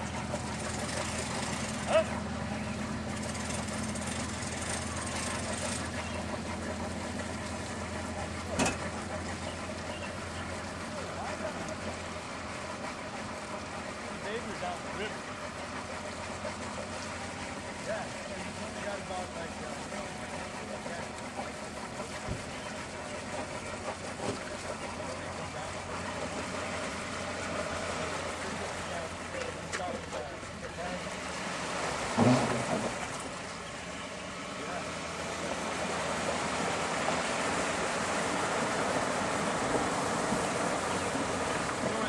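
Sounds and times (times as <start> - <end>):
low engine hum: 0.0 - 42.0
noisy wash: 0.0 - 42.0
river rushing: 31.0 - 42.0.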